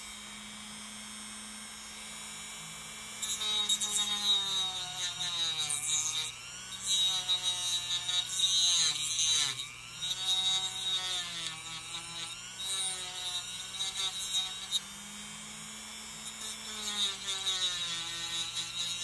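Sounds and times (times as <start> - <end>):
rotary tool cutting: 3.2 - 15.6, 16.2 - 19.0.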